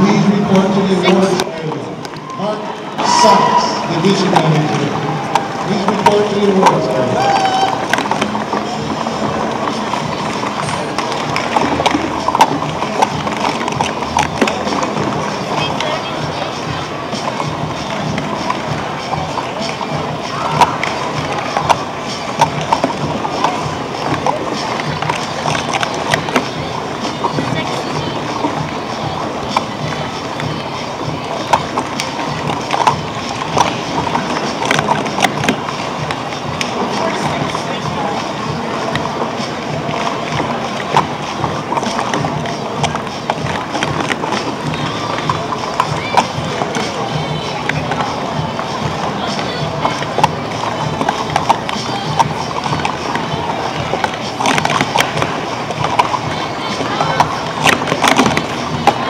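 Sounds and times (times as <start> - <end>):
busy hall din: 0.0 - 59.0
plastic cups clacking: 0.0 - 59.0.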